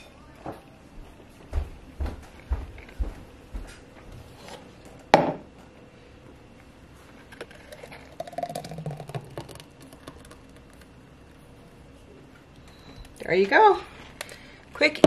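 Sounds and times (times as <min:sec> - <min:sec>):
smoothie pouring into jar: 0:07.3 - 0:10.9.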